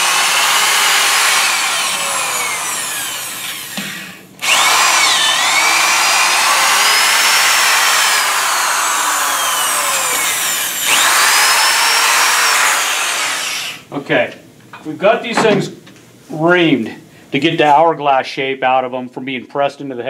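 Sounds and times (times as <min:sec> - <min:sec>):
electric drill motor whining: 0:00.0 - 0:13.9.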